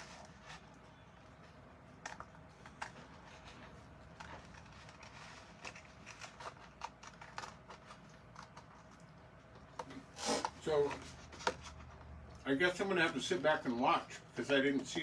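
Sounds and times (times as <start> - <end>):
scissors snipping paper: 4.1 - 8.7.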